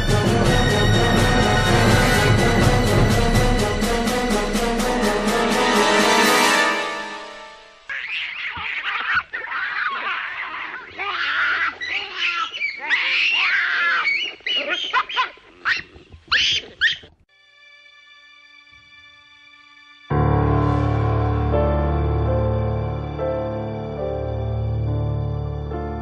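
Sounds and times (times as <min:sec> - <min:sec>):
baboons screaming: 0:07.9 - 0:17.2.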